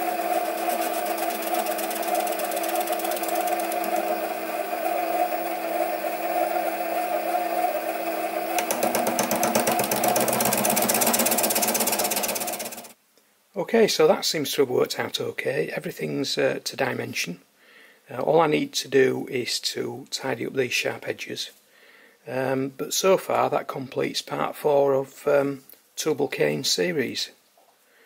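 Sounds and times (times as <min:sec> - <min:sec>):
lathe motor and gear whine: 0:00.0 - 0:12.9
fast fine ticking: 0:00.5 - 0:04.4, 0:08.5 - 0:13.0.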